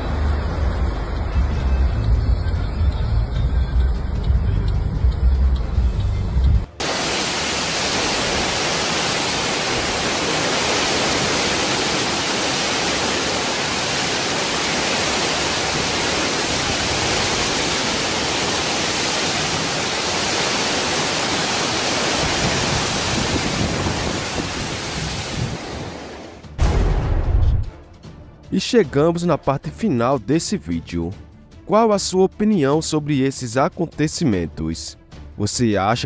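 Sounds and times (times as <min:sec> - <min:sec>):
torrential rain: 0:06.6 - 0:26.4.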